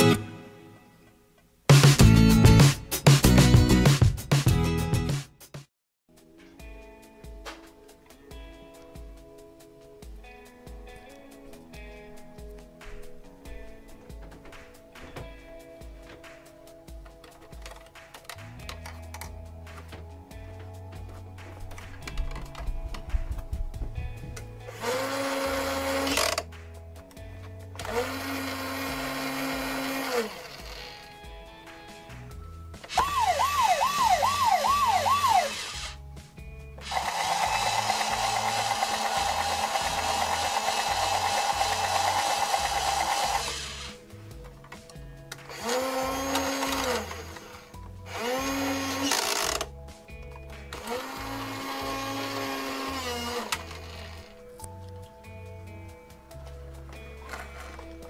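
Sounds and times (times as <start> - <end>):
background music with beat: 0.0 - 30.0, 30.6 - 58.0
toy winch motor whirring: 24.7 - 26.4, 27.8 - 31.1, 32.9 - 36.0, 36.8 - 44.0, 45.5 - 49.7, 50.8 - 54.3.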